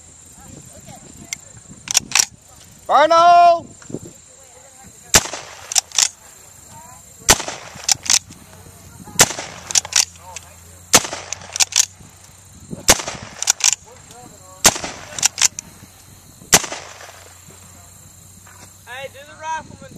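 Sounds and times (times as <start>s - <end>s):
rifle shots: 5.1s - 6.2s, 7.3s - 8.3s, 9.2s - 12.0s, 12.8s - 13.9s, 14.6s - 15.7s, 16.5s - 17.4s
rifle lever metallic clack: 11.3s - 11.9s, 13.4s - 13.8s, 15.2s - 15.6s.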